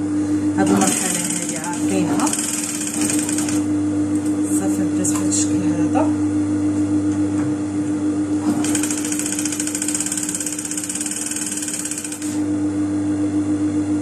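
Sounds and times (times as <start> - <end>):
motor hum: 0.0 - 14.0
sewing machine stitching: 0.6 - 3.6, 8.4 - 12.4.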